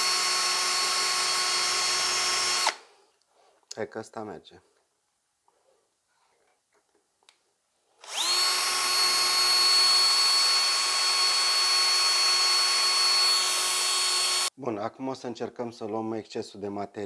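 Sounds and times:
rotary tool whining: 8.0 - 14.5.

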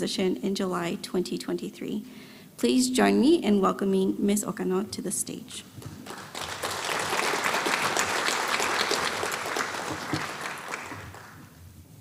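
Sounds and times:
audience applauding: 6.0 - 11.5.

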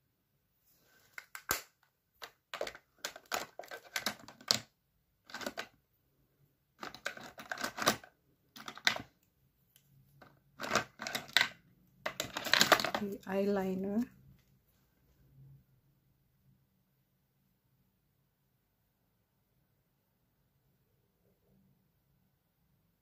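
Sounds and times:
make-up items clicking and rustling: 1.0 - 5.8, 6.8 - 13.4.

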